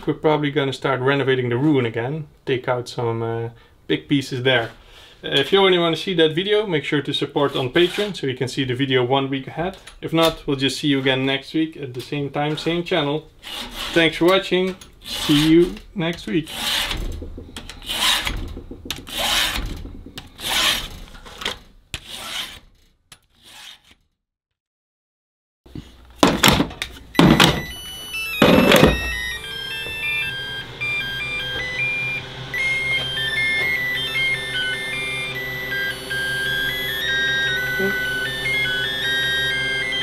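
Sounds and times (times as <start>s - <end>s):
file rasping on chain teeth: 13.4s - 14.1s, 15.0s - 15.6s, 16.5s - 17.0s, 17.8s - 18.3s, 20.3s - 21.0s, 22.0s - 22.7s, 23.4s - 24.0s
loud clunks: 16.7s - 21.6s, 28.4s - 29.4s
electronic music with bass: 17.0s - 20.7s, 27.2s - 40.0s.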